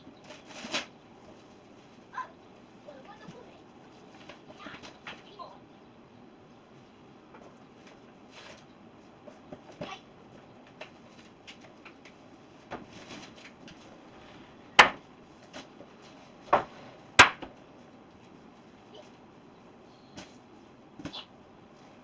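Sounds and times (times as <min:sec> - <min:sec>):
boards knocking: 0:14.8 - 0:15.1, 0:16.4 - 0:17.6.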